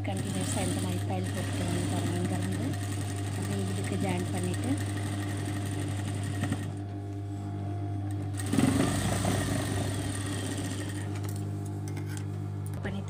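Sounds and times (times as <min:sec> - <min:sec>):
sewing machine stitching: 0:00.0 - 0:06.8, 0:08.3 - 0:11.3
low motor hum: 0:00.0 - 0:13.0.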